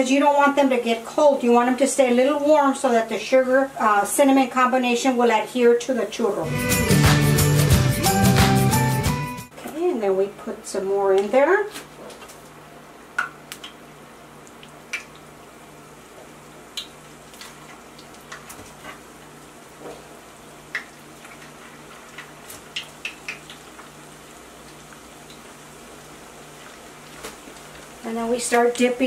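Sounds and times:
oil popping and crackling: 12.1 - 15.4, 16.2 - 29.0
oil sizzling: 12.3 - 29.0.

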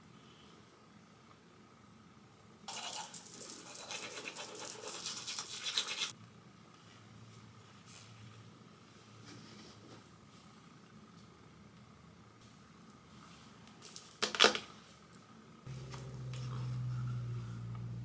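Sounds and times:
toothbrush scrubbing teeth: 2.7 - 6.1.

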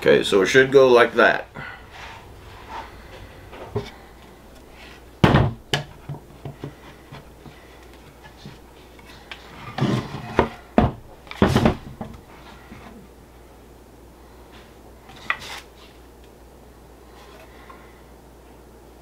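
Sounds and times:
wooden boards knocking: 5.2 - 6.8, 9.8 - 12.2.

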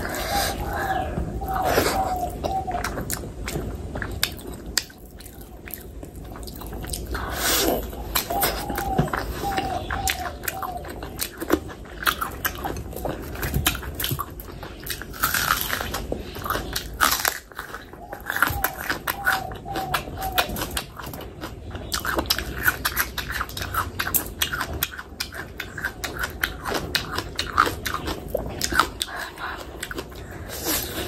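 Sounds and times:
chewing food: 0.0 - 31.0.

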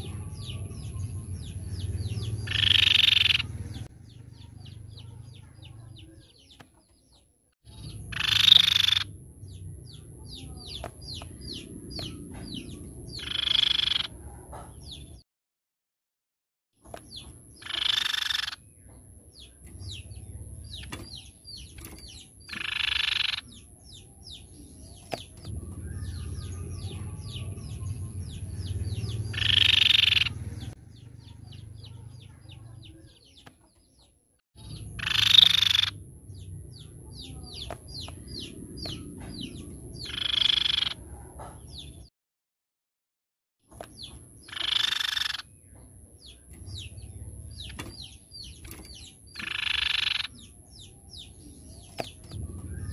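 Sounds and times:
bird giving harsh calls: 2.1 - 3.6, 8.0 - 9.1, 13.2 - 14.2, 17.6 - 18.6, 22.5 - 23.5, 29.2 - 30.4, 34.8 - 36.0, 40.0 - 41.1, 44.4 - 45.5, 46.7 - 50.4.

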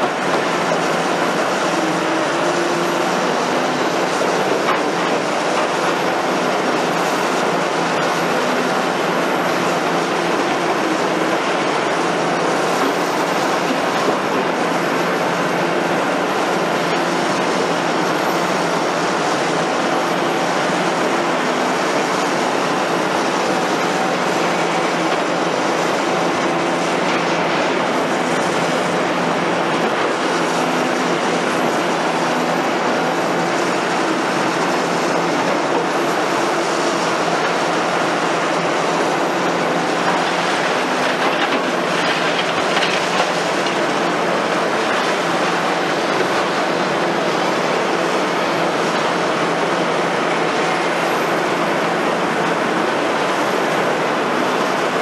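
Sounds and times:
excavator diesel engine running: 0.0 - 55.0
concrete rubble breaking: 41.0 - 43.9.

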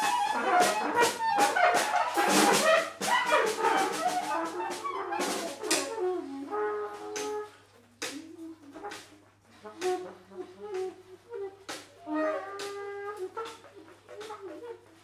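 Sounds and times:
drum strikes: 0.0 - 6.0
saxophones playing: 0.0 - 15.0.

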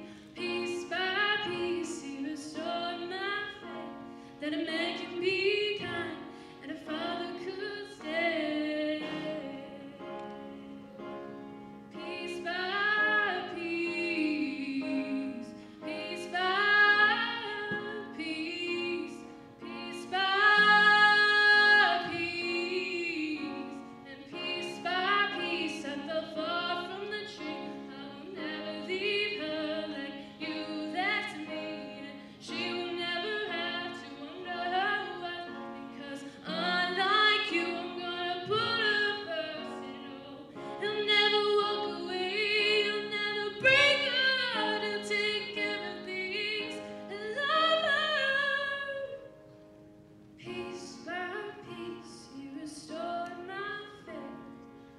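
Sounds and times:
woman singing: 0.0 - 11.0, 11.9 - 49.3, 50.4 - 54.5
piano chords: 0.0 - 54.9.

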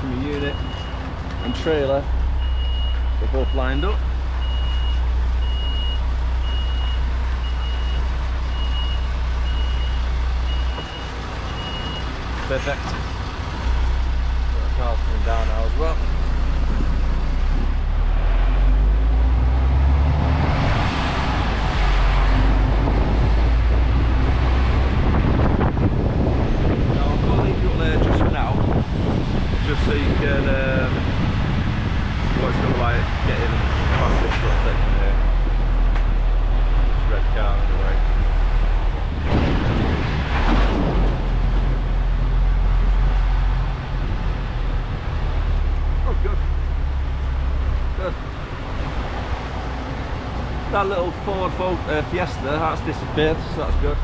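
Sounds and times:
lorry diesel engine rumble: 0.0 - 54.0.

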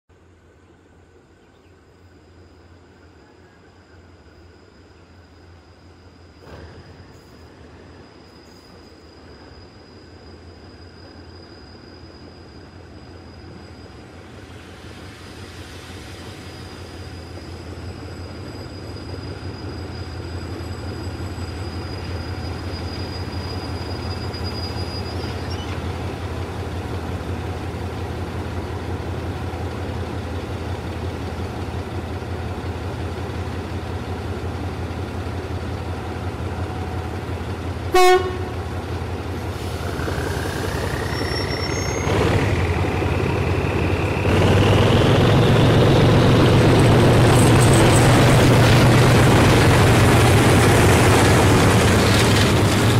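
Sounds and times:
diesel locomotive engine: 0.2 - 52.9
locomotive horn toot: 37.9 - 38.8.

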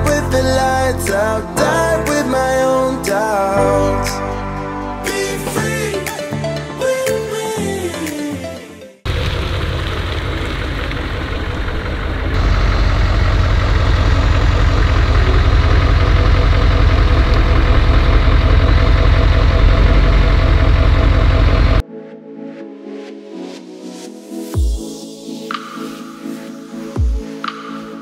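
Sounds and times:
diesel engine idling: 9.1 - 21.8.

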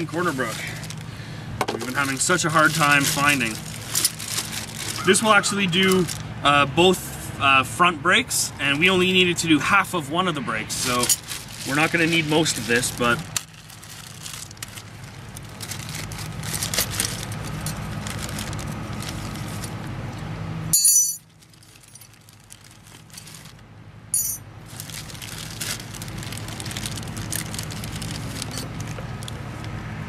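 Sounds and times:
plastic bag crinkling: 0.0 - 1.1, 1.8 - 6.2, 10.7 - 19.8, 21.2 - 23.7, 24.6 - 29.5
metal parts clinking: 20.7 - 22.2, 24.1 - 24.4.

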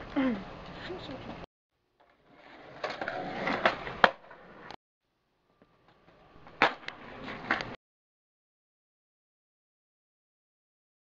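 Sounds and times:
skateboard wheels rolling on concrete: 2.0 - 4.8, 5.4 - 7.8.

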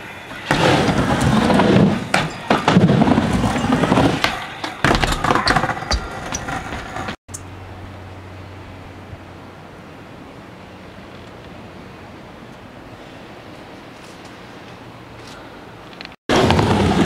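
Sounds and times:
skateboard wheels rolling on ramp: 0.3 - 7.2, 16.3 - 17.0.

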